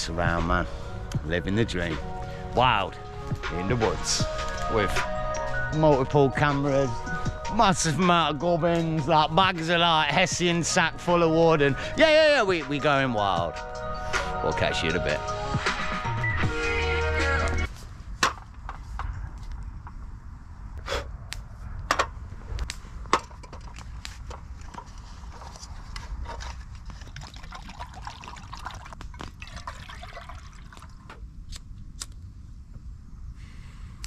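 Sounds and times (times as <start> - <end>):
wood fire crackling and popping: 22.5 - 24.9.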